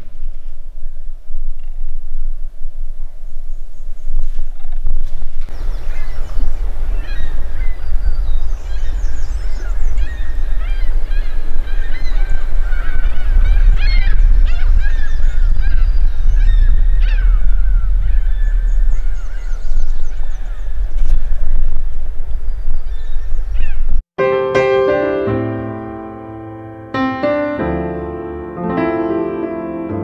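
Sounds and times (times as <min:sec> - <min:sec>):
wind rumble on microphone: 0:00.0 - 0:24.0
waterfowl calling: 0:05.5 - 0:23.9.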